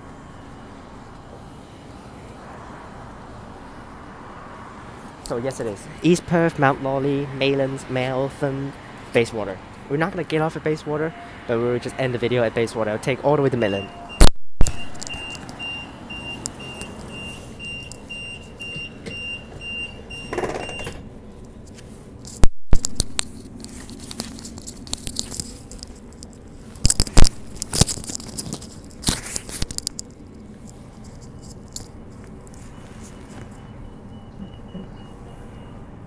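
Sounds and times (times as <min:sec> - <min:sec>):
high electronic warning beeps: 0:11.0 - 0:12.0, 0:13.6 - 0:21.0, 0:32.7 - 0:36.0
sharp clicks and knocks: 0:22.2 - 0:30.2.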